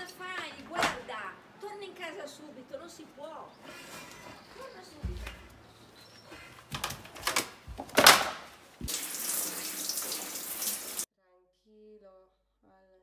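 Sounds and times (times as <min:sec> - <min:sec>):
rustles and thumps: 0:03.7 - 0:08.9
shower head spraying water: 0:08.8 - 0:11.1.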